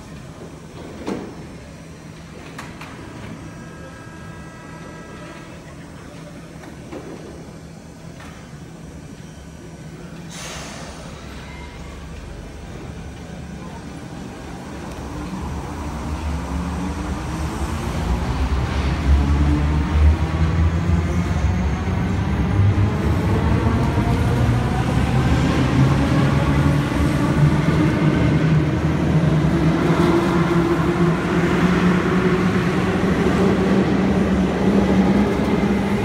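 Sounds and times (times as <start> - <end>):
train rumbling: 9.9 - 36.0.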